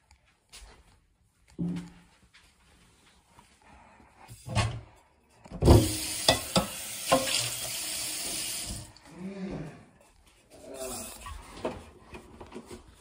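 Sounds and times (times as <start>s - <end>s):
kitchen tap running: 5.6s - 9.0s.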